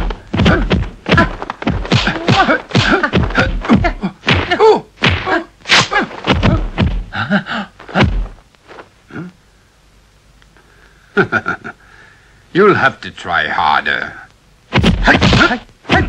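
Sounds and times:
punch and block thwacks: 0.0 - 7.1, 14.7 - 16.0.

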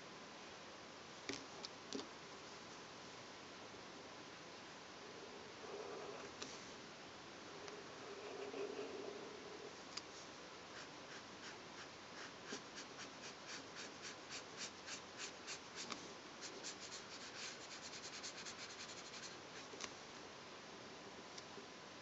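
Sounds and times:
pen scratching on paper: 7.9 - 9.3, 10.7 - 19.7.

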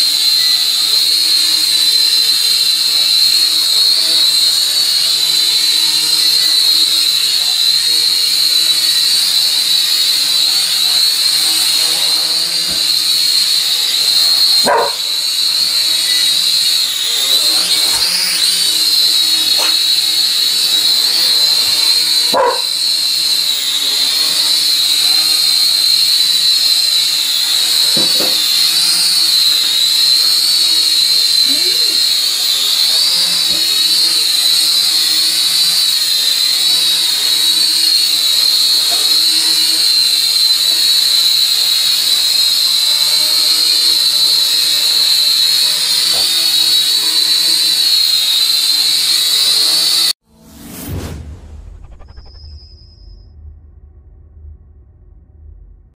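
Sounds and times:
quadcopter propellers whining: 0.0 - 51.0, 51.8 - 52.6
dog barking: 14.6 - 15.0, 22.3 - 22.7.

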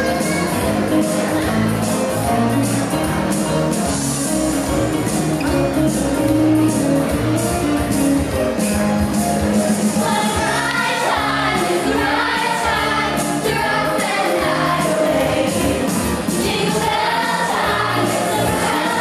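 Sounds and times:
accompanying music: 0.0 - 19.0
mixed choir singing: 10.0 - 19.0.

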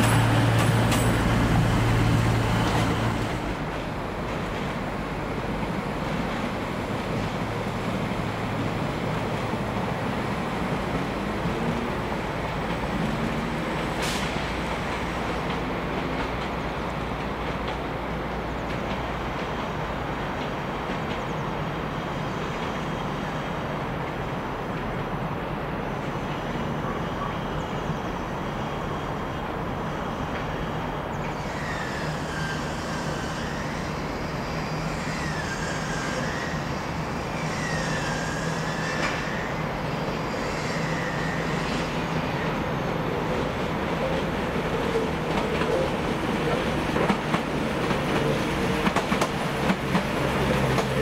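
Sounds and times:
train rumbling: 0.0 - 51.0
high wavering squeal: 31.4 - 42.8.

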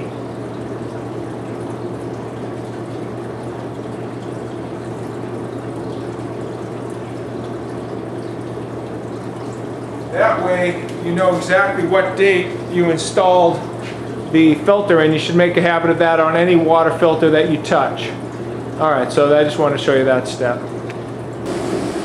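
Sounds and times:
water rushing: 21.4 - 22.0.

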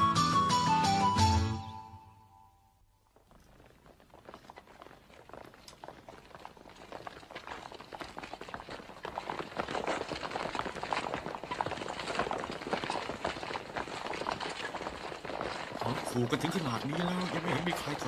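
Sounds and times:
crowd footsteps on hard floor: 3.0 - 18.0.

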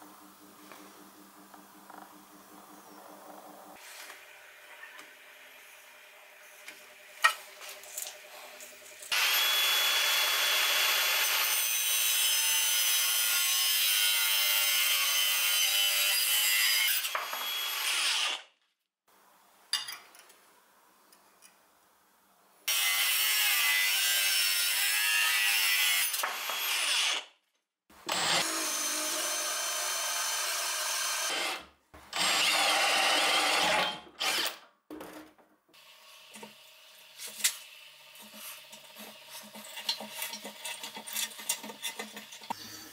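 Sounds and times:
power drill boring into steel: 28.1 - 31.6.

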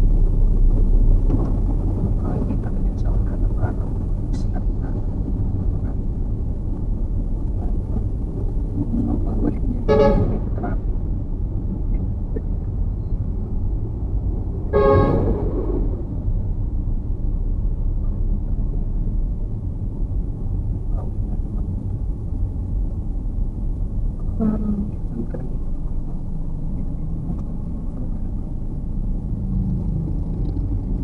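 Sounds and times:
car engine and tyres rumbling: 0.0 - 31.0.

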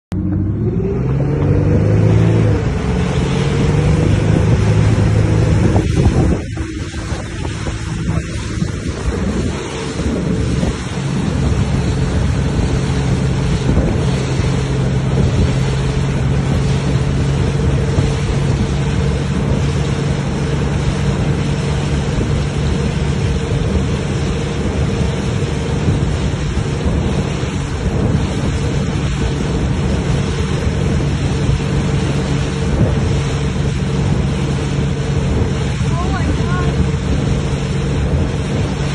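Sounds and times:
outboard motor drone: 0.1 - 38.9
rush of boat wake: 0.1 - 38.9
wind buffeting microphone: 0.1 - 38.9.

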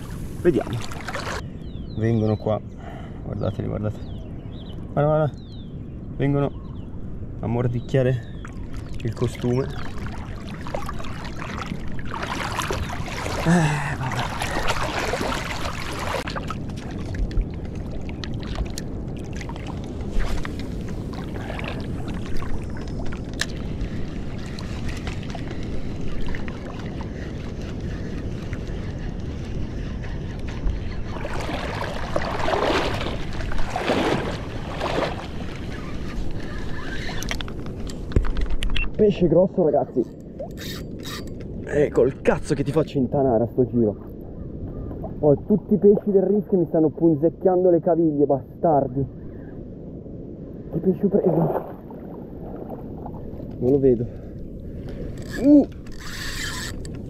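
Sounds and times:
sea water lapping around legs: 0.0 - 1.4, 8.4 - 37.8, 51.3 - 57.0
wind buffeting microphone: 3.1 - 57.0.

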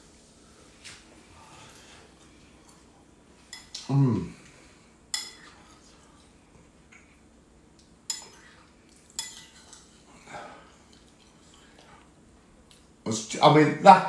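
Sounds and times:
metal spoon clinking on ceramic bowl: 5.1 - 5.5, 8.1 - 8.5, 9.2 - 9.8.

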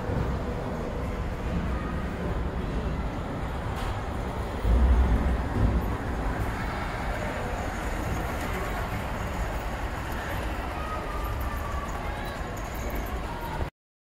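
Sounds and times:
model train running past: 3.2 - 13.7.

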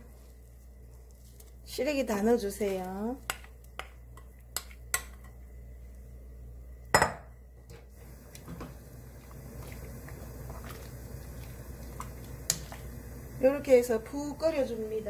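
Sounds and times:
wooden spoon stirring in pot: 0.0 - 5.4, 8.0 - 15.0
glass bowl clinking on metal pot: 7.0 - 7.3.

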